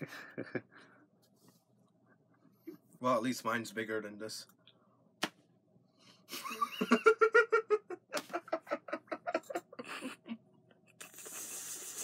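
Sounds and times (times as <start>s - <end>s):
man laughing hard: 0.0s - 0.7s, 6.3s - 10.4s
steady hiss: 11.0s - 12.0s.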